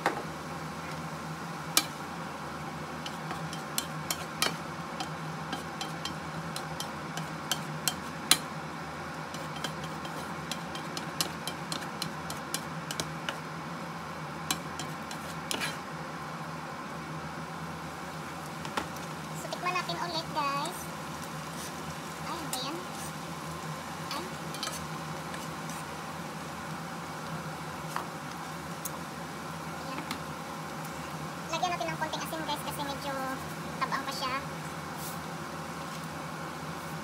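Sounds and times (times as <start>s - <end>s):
steady low hum: 0.0s - 37.0s
spatula scraping frying pan: 3.0s - 8.4s, 9.3s - 13.1s, 14.5s - 15.9s, 24.5s - 25.9s.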